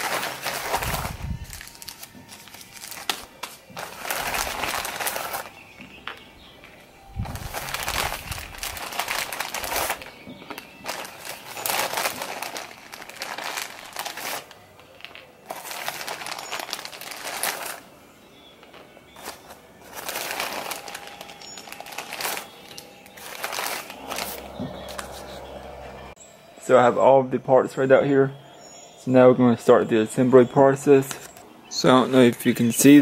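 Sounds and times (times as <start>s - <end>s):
plastic bags crinkling: 0.0s - 18.0s, 18.6s - 25.4s.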